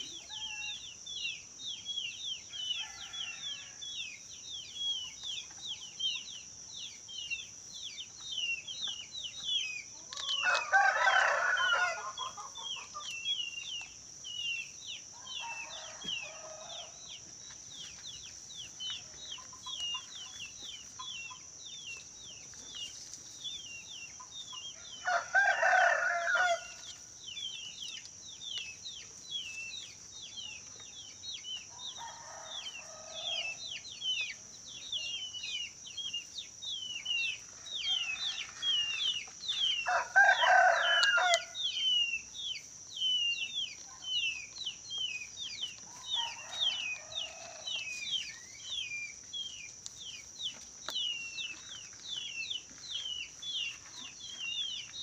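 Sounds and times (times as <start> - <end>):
distant rooster crowing: 2.5 - 3.8, 10.1 - 12.8, 15.2 - 17.0, 24.8 - 26.8, 31.7 - 33.7, 37.6 - 39.2, 39.8 - 41.6, 45.9 - 48.0
rooster crowing: 2.6 - 3.8, 10.2 - 12.5, 15.2 - 17.0, 24.8 - 26.8, 31.7 - 33.7, 37.6 - 39.1, 39.8 - 41.6, 46.0 - 48.0.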